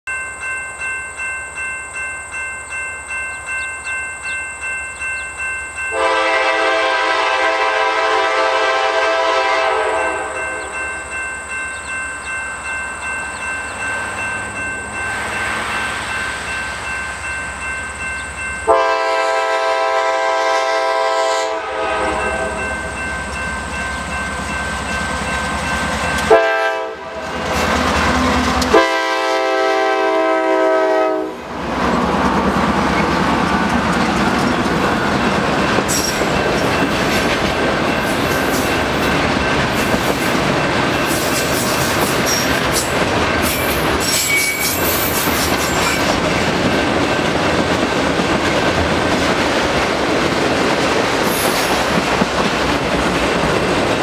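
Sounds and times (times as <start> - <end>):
crossing bell ringing: 0.0 - 54.0
train engines passing: 0.1 - 54.0
diesel locomotive horn blasts: 5.9 - 10.8, 18.6 - 23.0, 26.2 - 27.6, 28.3 - 31.5.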